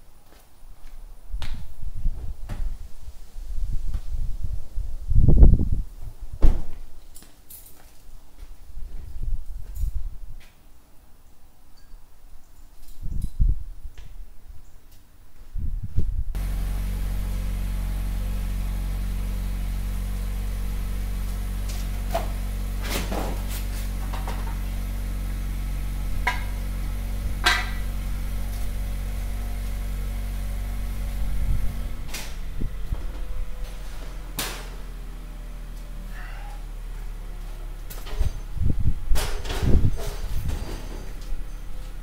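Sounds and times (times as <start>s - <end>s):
low machine hum: 16.4s - 42.0s.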